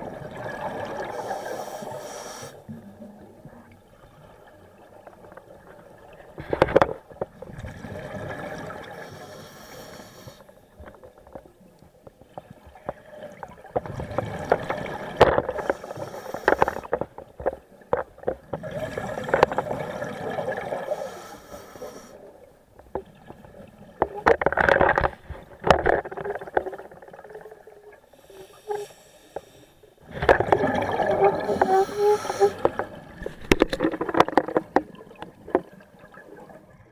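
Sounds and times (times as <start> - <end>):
gurgling exhaled bubbles: 0.0 - 1.3, 7.5 - 9.0, 18.4 - 21.0, 30.0 - 36.9
regulator inhale hiss: 1.1 - 2.7, 9.0 - 10.5, 15.5 - 16.9, 20.9 - 22.2, 28.1 - 30.0, 31.4 - 32.7.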